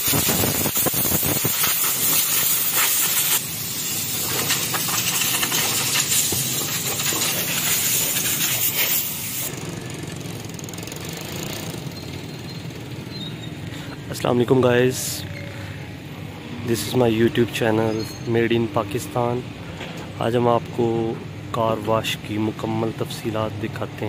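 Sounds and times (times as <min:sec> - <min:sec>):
hiss of water spray: 0:00.0 - 0:09.5.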